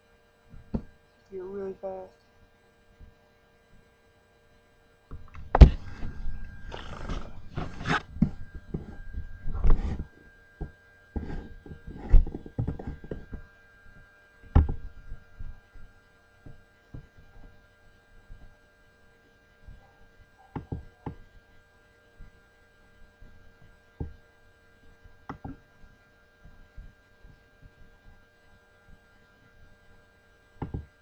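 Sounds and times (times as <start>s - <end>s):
electrical hum: 0.0s - 31.0s
thumps and knocks: 5.1s - 6.1s, 6.7s - 13.4s, 14.5s - 14.9s, 30.6s - 30.9s.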